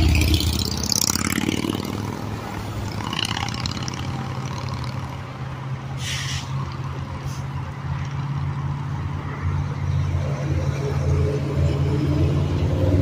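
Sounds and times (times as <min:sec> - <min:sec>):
short hiss: 0:06.0 - 0:06.6.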